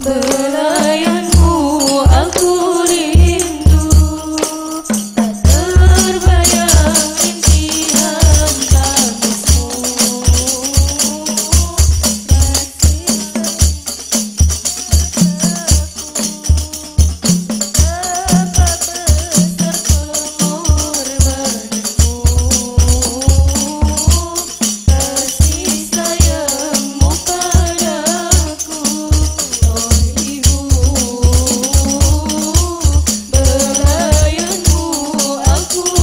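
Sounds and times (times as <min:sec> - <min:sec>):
frame drums: 0:00.0 - 0:36.0
voices singing through microphones: 0:00.0 - 0:36.0.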